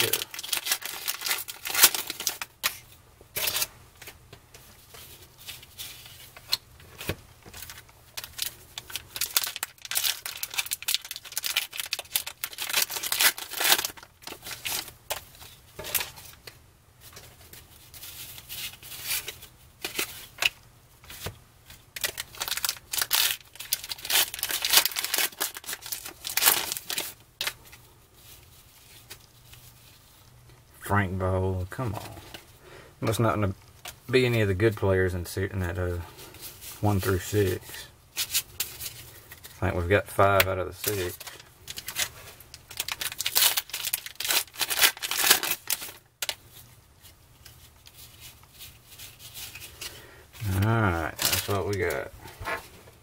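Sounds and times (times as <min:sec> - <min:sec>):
plastic wrapper tearing and crinkling: 0:00.0 - 0:03.7, 0:05.5 - 0:16.5, 0:22.0 - 0:27.6, 0:40.4 - 0:46.6, 0:47.4 - 0:52.1.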